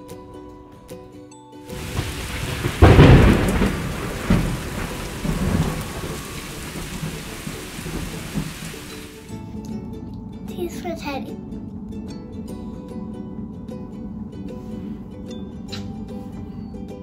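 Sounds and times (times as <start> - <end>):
steady rain: 1.7 - 9.3
thunder clap and rumbles: 1.7 - 9.3.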